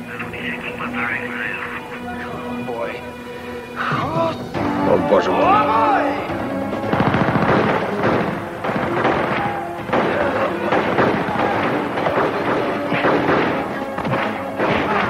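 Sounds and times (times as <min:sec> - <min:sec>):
dramatic music score: 0:00.0 - 0:15.0
gunshots: 0:06.2 - 0:15.0.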